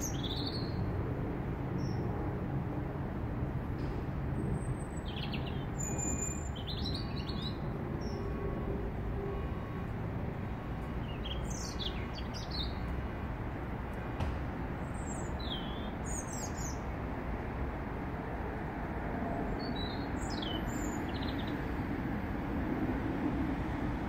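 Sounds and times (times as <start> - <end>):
robin singing: 0.0 - 0.8, 4.8 - 8.2, 11.0 - 12.9, 14.9 - 16.9, 19.6 - 21.7.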